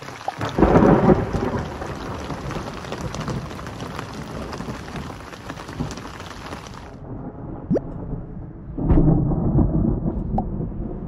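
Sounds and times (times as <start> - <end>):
steady rain falling: 0.0 - 7.0
thunderclap rumbling: 0.0 - 11.0.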